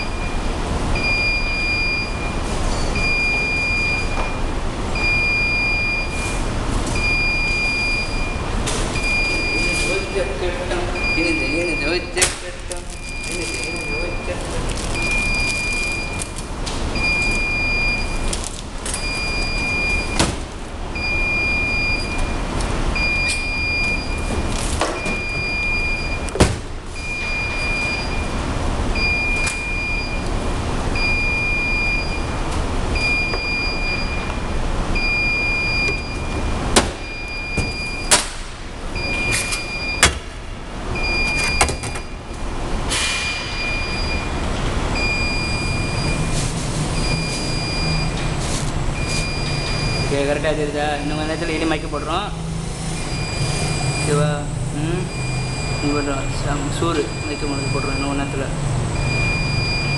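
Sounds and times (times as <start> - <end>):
high electronic beep: 0.0 - 4.4, 9.0 - 12.2, 21.0 - 22.4, 27.0 - 28.4, 33.0 - 38.1, 43.2 - 44.4, 45.0 - 46.4, 47.0 - 48.2, 49.0 - 52.2, 52.9 - 59.9
steady background noise: 0.0 - 59.9.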